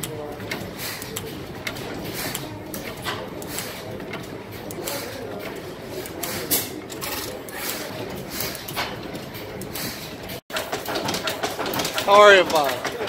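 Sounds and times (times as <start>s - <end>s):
sharp clicks and knocks: 0.0s - 13.0s.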